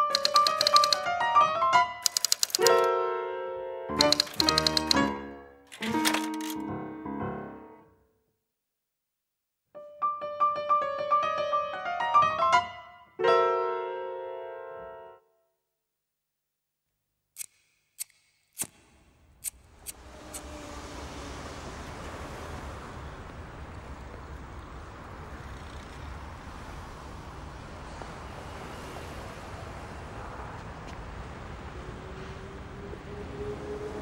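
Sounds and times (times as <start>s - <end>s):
sharp clicks: 0.0s - 1.1s, 2.0s - 2.9s, 4.0s - 5.1s, 17.4s - 20.5s
low rumble of traffic: 19.3s - 34.0s.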